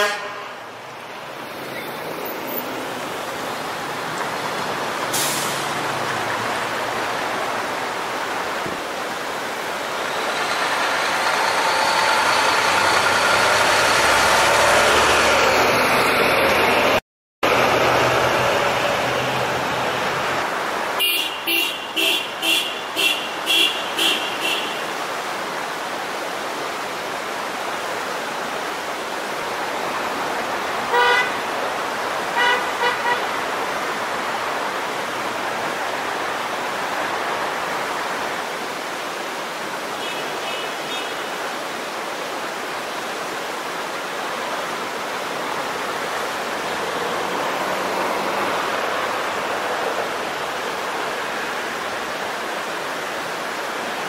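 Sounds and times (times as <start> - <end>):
car horns tooting: 0.0 - 0.6, 21.0 - 24.9, 30.9 - 31.4, 32.4 - 33.4
fast-flowing creek rushing: 0.0 - 54.0.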